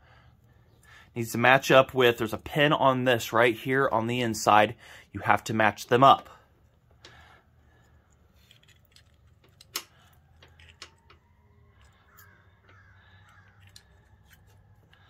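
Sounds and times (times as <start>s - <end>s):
carburetor parts clicking: 8.1s - 15.0s.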